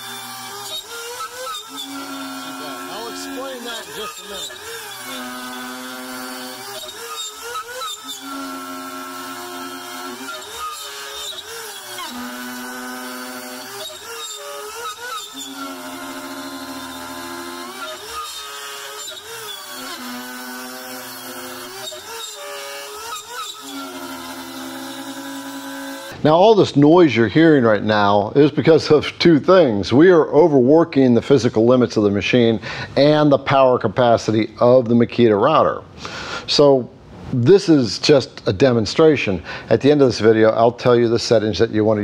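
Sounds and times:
router motor whine cutting wood: 0.0 - 26.2.

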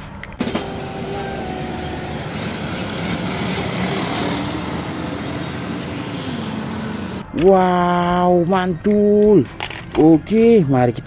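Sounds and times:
road noise: 0.0 - 7.6
diesel engine noise: 0.4 - 7.3.

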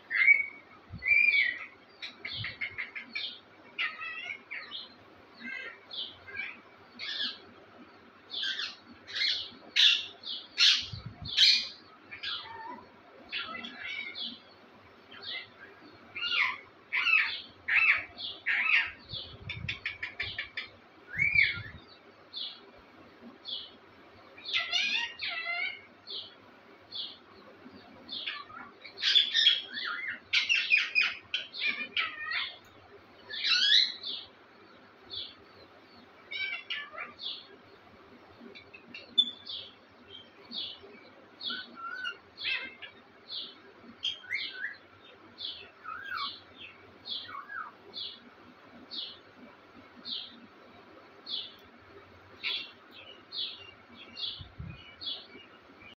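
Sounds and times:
parakeets chirping and squawking: 0.1 - 7.5, 8.3 - 14.4, 15.1 - 21.8, 24.4 - 26.3, 27.8 - 32.7, 33.3 - 34.2, 36.3 - 37.5, 41.4 - 44.8, 45.4 - 49.1, 52.3 - 55.9.

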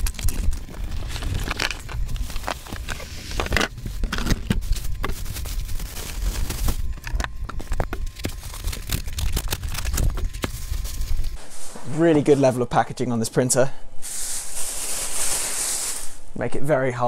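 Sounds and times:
plastic bag crinkling: 0.0 - 11.4
cardboard flaps scraping: 0.0 - 12.1.

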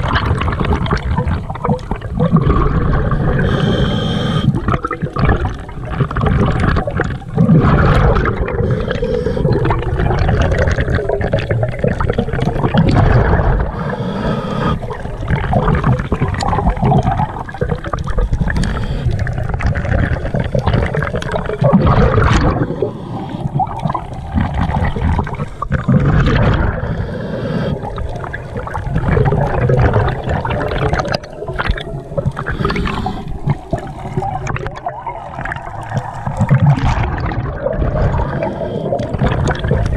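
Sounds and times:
exhaled bubbles gurgling: 0.0 - 39.9
underwater regulator breathing: 2.3 - 4.9, 6.8 - 10.9, 12.8 - 15.4, 16.6 - 25.9, 26.5 - 28.8, 30.1 - 34.6, 35.9 - 39.9.

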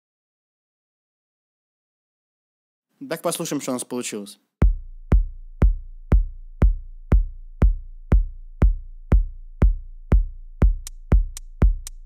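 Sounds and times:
electronic kick drum beat: 4.6 - 12.0.

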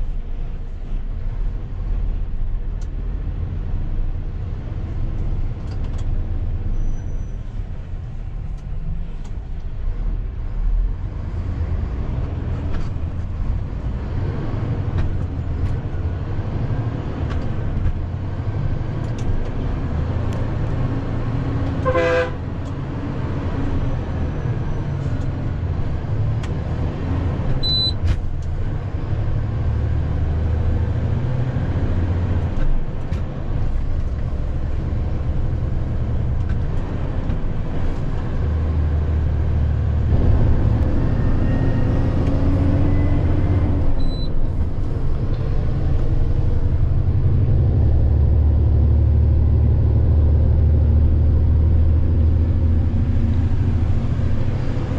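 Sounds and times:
vehicle horn toot: 21.8 - 22.4.

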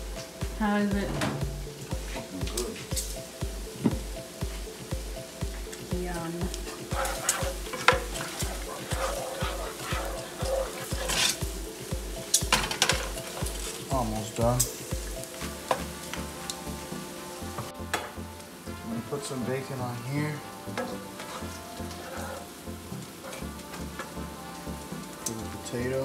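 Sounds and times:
bacon sizzling in a pan: 1.5 - 17.8, 20.5 - 25.3
spoon scraping a pan: 6.7 - 11.5, 20.8 - 22.6, 23.2 - 24.2.

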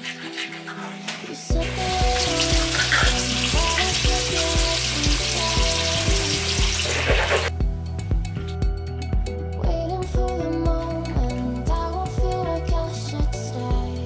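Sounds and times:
background music with steady beat: 0.0 - 14.0
food sizzling in a frying pan: 1.5 - 7.5.

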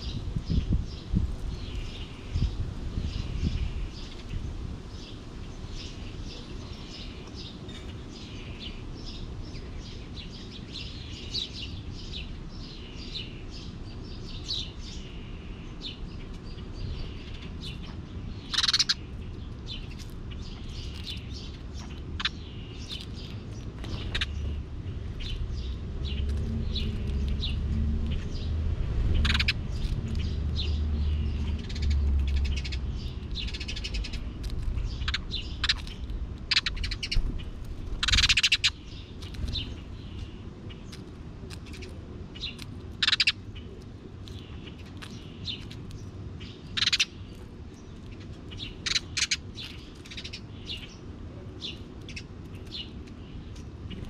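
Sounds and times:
small birds chirping: 0.0 - 54.0
low rumble: 23.8 - 38.3.

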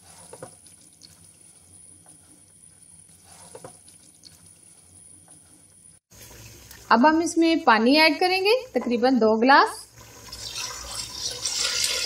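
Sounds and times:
curry sizzling in a pot: 6.0 - 7.1, 9.9 - 12.0
spatula scraping a pot: 10.2 - 12.0.

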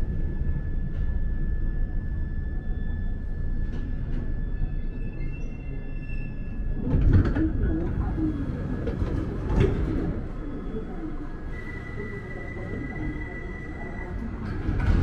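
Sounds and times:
train low rumble: 0.0 - 15.0
train clatter: 14.3 - 15.0.

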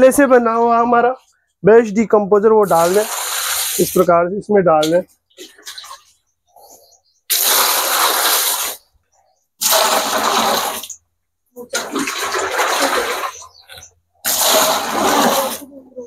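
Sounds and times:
liquid pouring and splashing: 2.6 - 4.1, 4.8 - 6.2, 7.3 - 8.9, 9.6 - 15.7.

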